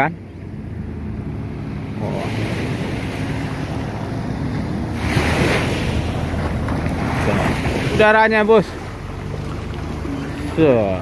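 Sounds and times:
rush of wind or water: 0:00.0 - 0:11.0
wind buffeting microphone: 0:00.4 - 0:11.0.

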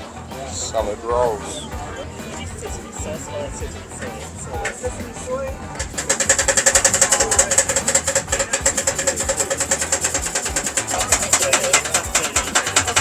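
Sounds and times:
small engine clattering: 0:05.7 - 0:13.0.

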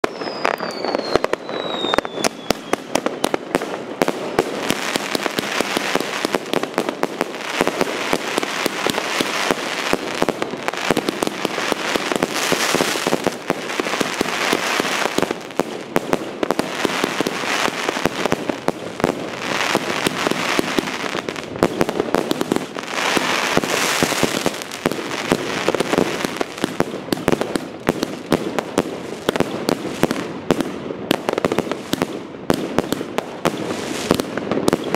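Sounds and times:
falling firework whistle: 0:00.0 - 0:03.5
crackle of bursting fireworks: 0:00.0 - 0:34.9
fireworks shots and pops: 0:00.0 - 0:34.9.

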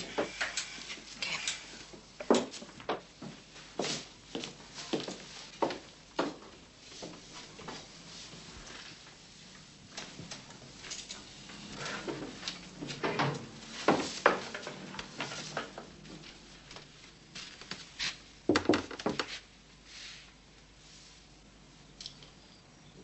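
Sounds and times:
objects knocking and rattling: 0:11.9 - 0:16.0, 0:18.5 - 0:19.3.

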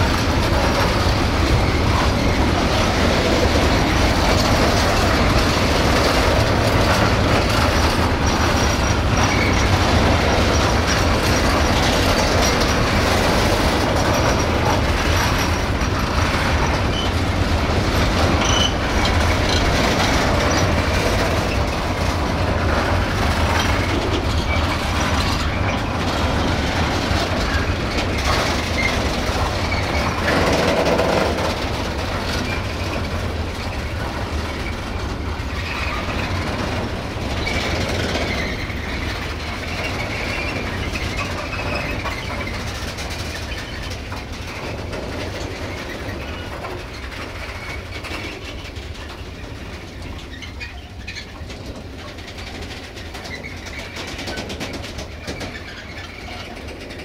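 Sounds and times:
train wheels rumbling on rails: 0:00.0 - 0:57.0
wheel squeal: 0:00.0 - 0:57.0.

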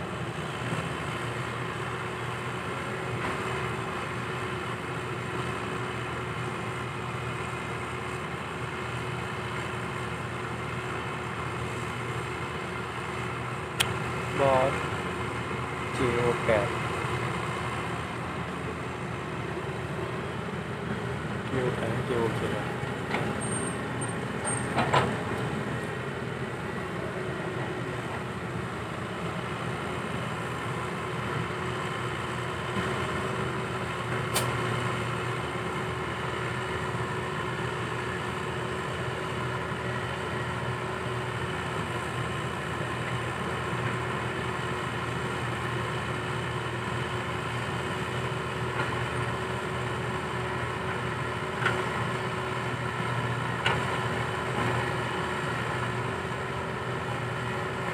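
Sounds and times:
diesel engine running: 0:00.0 - 0:57.9
sharp click: 0:34.3 - 0:34.5.

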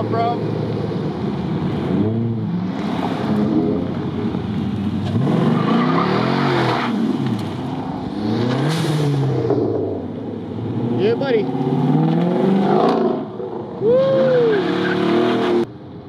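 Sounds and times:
car engine revving hard: 0:05.1 - 0:07.2, 0:08.0 - 0:10.0, 0:10.6 - 0:13.6, 0:14.2 - 0:15.7.

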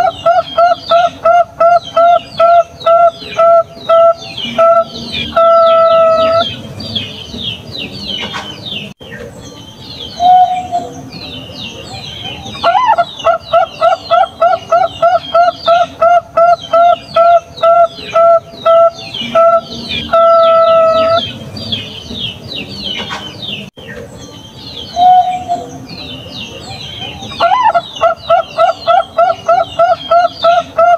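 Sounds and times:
dove cooing: 0:00.0 - 0:06.7, 0:12.2 - 0:21.9, 0:27.0 - 0:30.9
small birds chirping: 0:00.0 - 0:30.9.

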